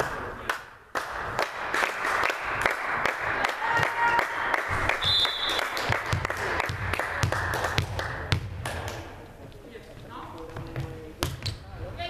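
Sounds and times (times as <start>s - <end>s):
spectators clapping: 0.4s - 9.1s
short high whistle: 5.0s - 5.7s.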